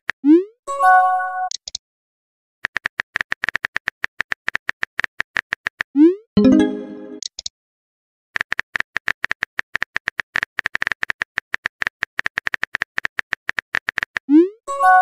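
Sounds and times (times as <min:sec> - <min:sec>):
incoming message chime: 0:06.4 - 0:07.2.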